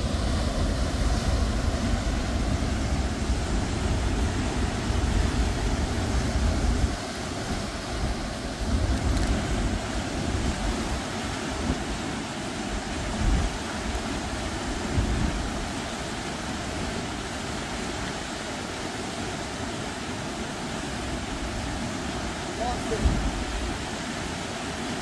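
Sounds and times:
wind buffeting microphone: 0.0 - 12.0, 12.7 - 15.7
water rushing over spillway: 0.0 - 25.0.

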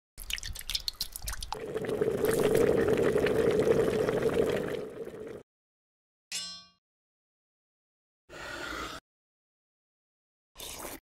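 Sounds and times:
small splashes in broth: 0.2 - 3.3
soup bubbling in a pot: 0.2 - 5.4.

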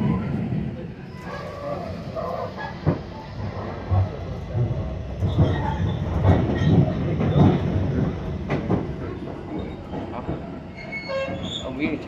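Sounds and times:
train wheels rumbling on track: 0.0 - 12.0
clacks and knocks: 2.8 - 11.4.

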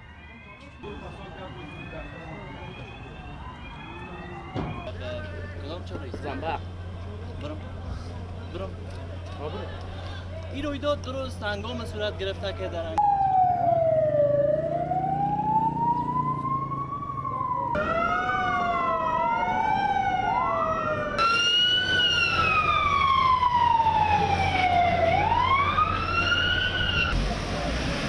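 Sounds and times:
emergency sirens wailing: 0.0 - 7.2, 13.0 - 28.0
low street noise: 0.0 - 28.0.

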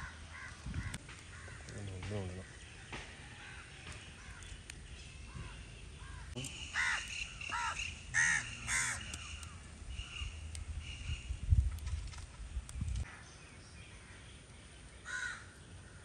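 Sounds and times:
crows cawing: 0.0 - 1.8, 5.3 - 10.4, 15.0 - 16.0.

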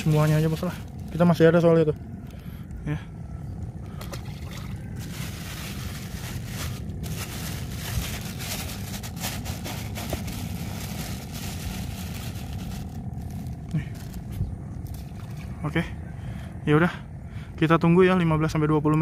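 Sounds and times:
low rumble: 0.0 - 17.5
plastic bags crinkling: 4.9 - 14.4.

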